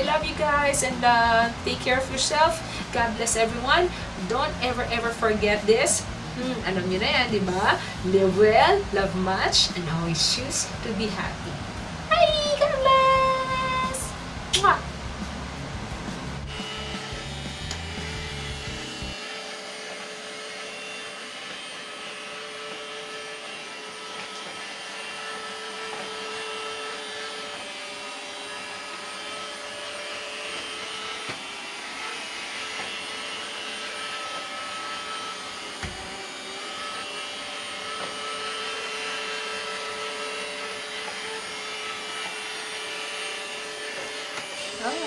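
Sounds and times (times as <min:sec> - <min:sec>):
robot vacuum motor whirring: 0:15.9 - 0:45.0.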